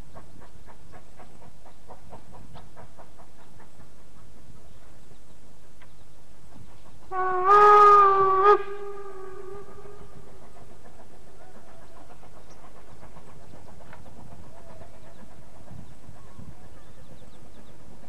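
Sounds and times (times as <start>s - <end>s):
steam locomotive whistle blast: 7.1s - 10.2s.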